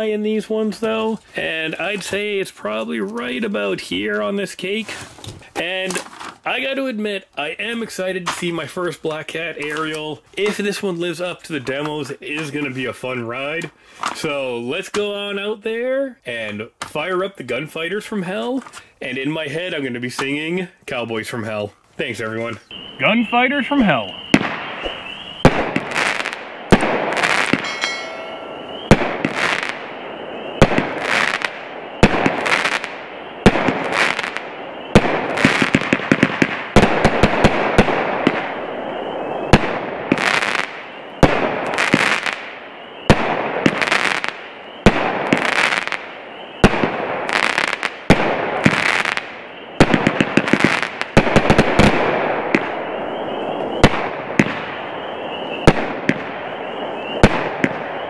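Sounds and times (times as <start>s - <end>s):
firework shots with crackling: 24.2s - 58.0s.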